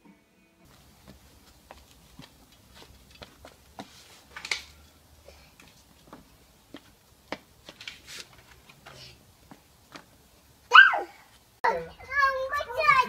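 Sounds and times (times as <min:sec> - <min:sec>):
child's shoes stepping on tiles: 0:00.6 - 0:10.6
rubber tyres being handled: 0:00.7 - 0:10.2.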